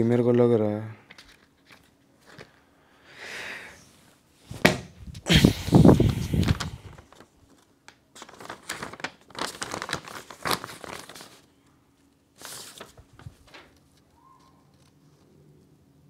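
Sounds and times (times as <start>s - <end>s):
paper crinkling: 6.0s - 15.3s.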